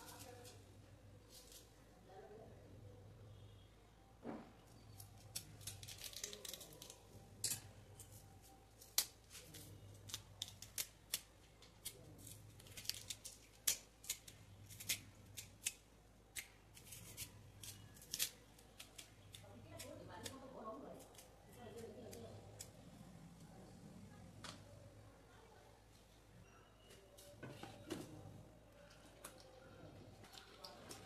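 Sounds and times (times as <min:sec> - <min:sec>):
knife scraping banana skin: 0:08.8 - 0:22.7.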